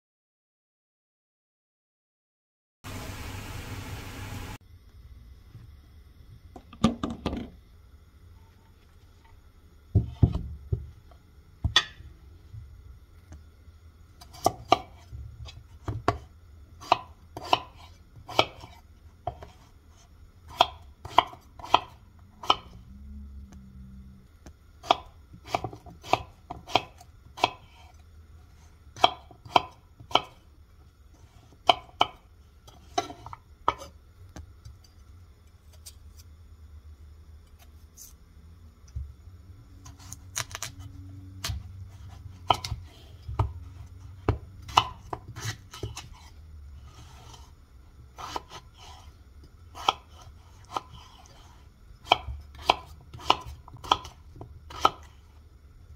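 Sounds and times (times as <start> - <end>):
knife chopping potato on board: 14.2 - 19.7, 20.5 - 22.8, 24.8 - 27.9, 29.0 - 30.4, 31.5 - 33.9, 41.4 - 46.2, 48.2 - 49.0, 49.7 - 51.4, 52.0 - 55.1.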